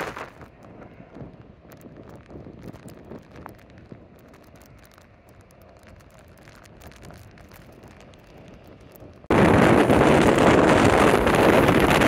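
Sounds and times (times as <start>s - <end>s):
wind: 0.0s - 12.0s
small crackling ticks: 0.3s - 9.3s.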